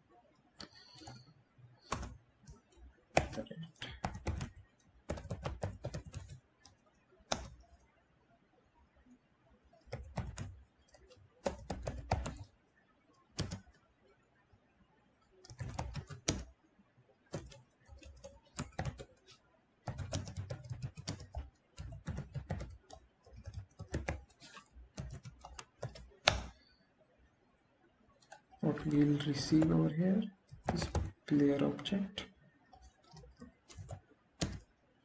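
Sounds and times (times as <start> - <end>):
typing on a computer keyboard: 0.6 - 7.9, 9.7 - 12.6, 13.2 - 13.9, 15.2 - 16.6, 17.3 - 26.7, 28.2 - 31.6, 32.7 - 34.8.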